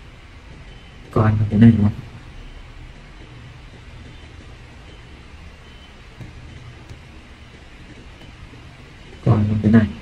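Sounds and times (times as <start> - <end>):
low hum and hiss: 0.0 - 10.0.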